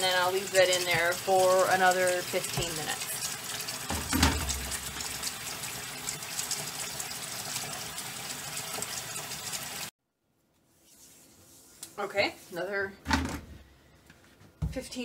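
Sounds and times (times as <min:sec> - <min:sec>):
tap water running into sink: 0:00.0 - 0:09.9.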